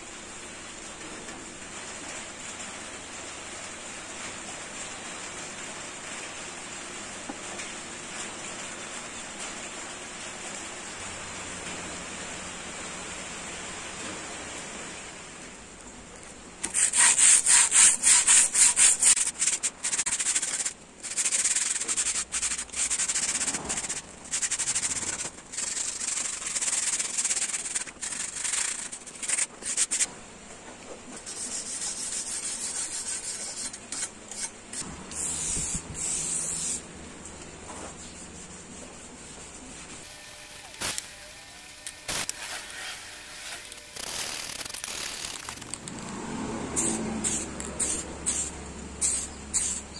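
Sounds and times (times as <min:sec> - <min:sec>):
sanding steel blade by hand: 0:16.6 - 0:30.1, 0:31.3 - 0:36.8, 0:46.7 - 0:49.9.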